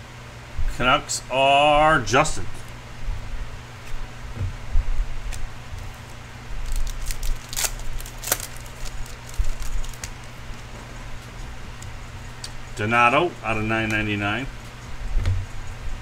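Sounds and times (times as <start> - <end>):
steady low hum: 0.0 - 16.0
card crackles: 5.3 - 10.7.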